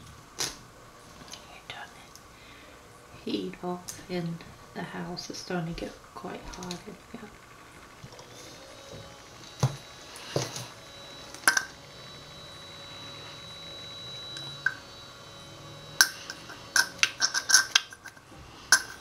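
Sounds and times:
utensils and glass clinking: 0:16.0 - 0:19.0.

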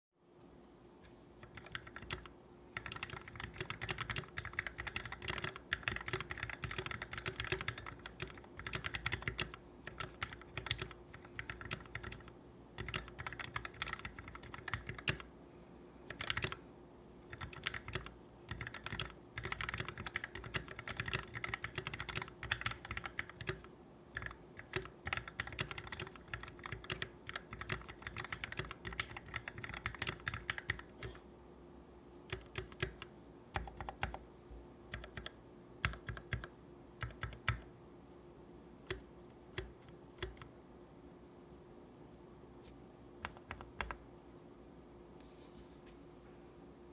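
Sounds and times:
mechanical keyboard typing: 0:01.4 - 0:15.3, 0:16.1 - 0:16.6, 0:17.3 - 0:31.1, 0:32.3 - 0:34.2, 0:34.9 - 0:37.7, 0:38.9 - 0:40.5, 0:43.2 - 0:44.0.

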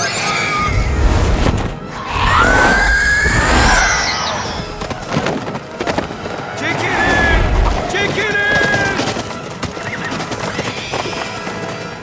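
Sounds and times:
orchestral battle music: 0:00.5 - 0:10.4
long rising screech: 0:01.9 - 0:04.8.

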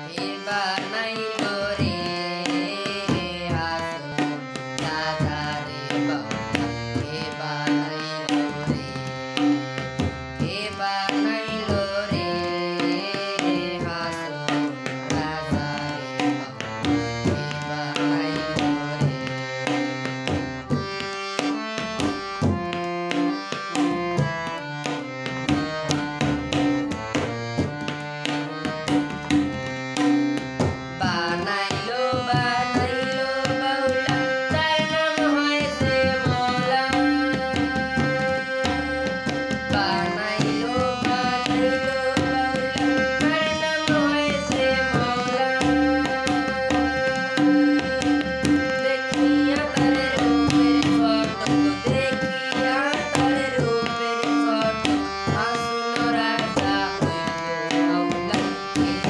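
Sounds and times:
electronic keyboard folk melody: 0:00.0 - 0:59.0
repeating drum rhythm: 0:18.1 - 0:31.2.

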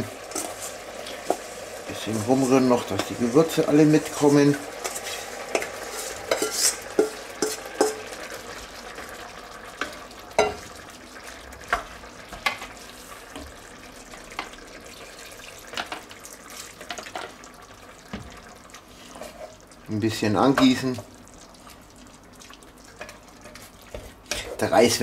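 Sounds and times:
low sizzle: 0:00.0 - 0:25.0
spoon scraping and knocking pot: 0:04.8 - 0:08.0.

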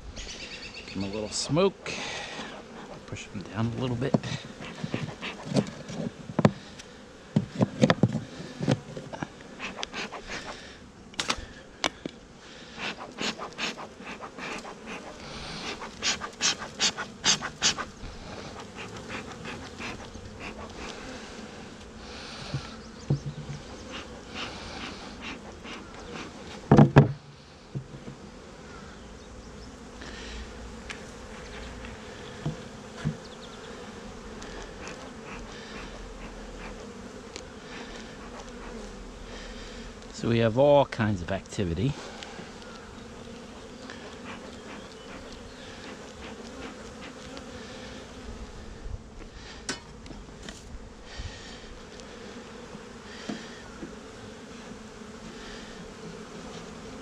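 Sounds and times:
bees buzzing: 0:00.0 - 0:57.0.

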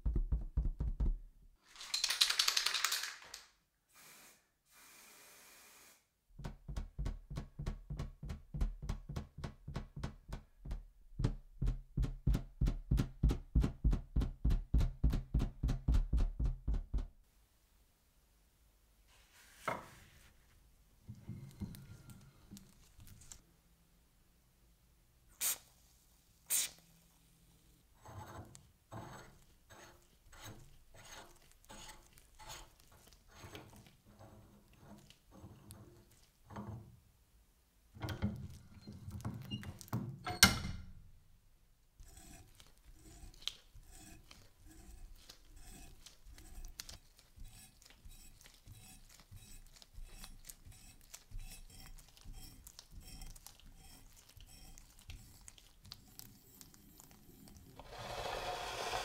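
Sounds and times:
spray can puffs: 0:25.4 - 0:25.7, 0:26.5 - 0:26.8
die scraping on metal tube: 0:28.0 - 0:35.6, 0:42.0 - 0:55.4, 0:57.8 - 0:59.0.

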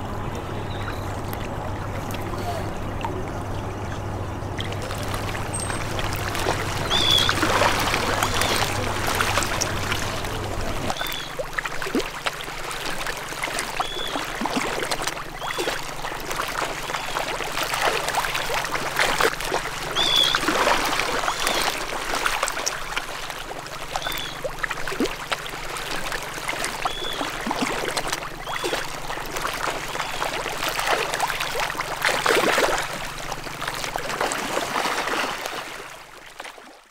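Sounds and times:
steady low hum: 0:00.0 - 0:36.3
water splashing and trickling: 0:00.0 - 0:36.9
high bird calls: 0:00.5 - 0:01.3, 0:06.8 - 0:07.4, 0:08.0 - 0:08.9, 0:10.9 - 0:11.4, 0:13.8 - 0:14.2, 0:20.0 - 0:20.4, 0:24.0 - 0:24.4, 0:26.8 - 0:27.3.

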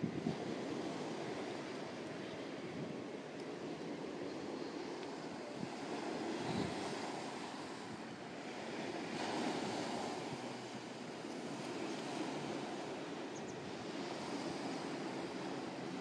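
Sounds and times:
sea waves washing onto shore: 0:00.0 - 0:16.0
wind buffeting microphone: 0:00.0 - 0:16.0.

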